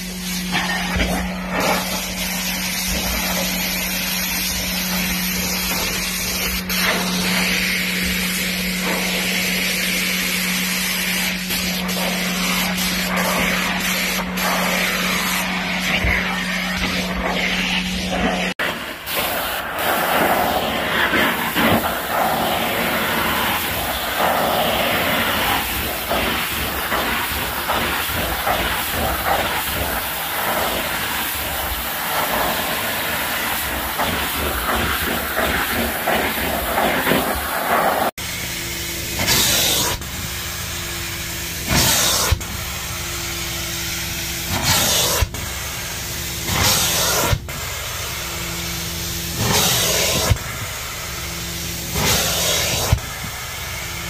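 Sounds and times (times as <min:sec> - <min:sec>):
vacuum rushing and hissing: 0:00.0 - 0:38.2, 0:46.4 - 0:54.0
machine hum: 0:00.0 - 0:39.2
spray and suction hiss: 0:00.0 - 0:54.0.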